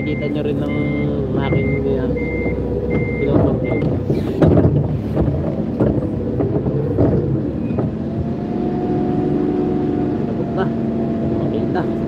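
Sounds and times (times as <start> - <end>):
forklift engine drone: 0.0 - 12.0
knocks and rattles: 1.4 - 8.3.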